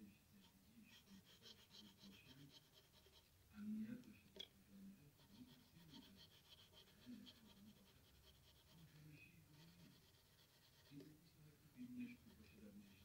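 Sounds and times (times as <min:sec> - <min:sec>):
pencil scratching on paper: 0:00.4 - 0:03.3, 0:05.1 - 0:11.2, 0:11.8 - 0:13.0.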